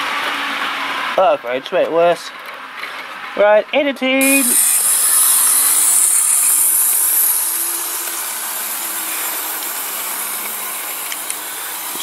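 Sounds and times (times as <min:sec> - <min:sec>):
model train running on track: 0:04.3 - 0:12.0.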